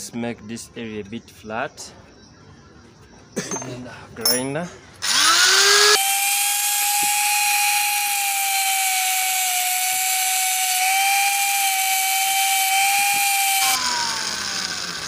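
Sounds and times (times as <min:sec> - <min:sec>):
angle grinder grinding metal: 0:05.0 - 0:15.0.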